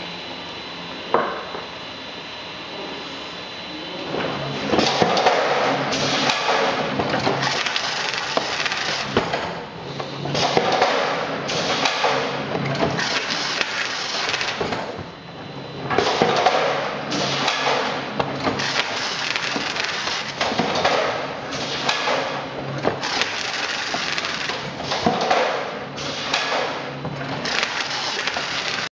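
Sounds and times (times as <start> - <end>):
case sealer machine clattering: 15.9 - 28.9.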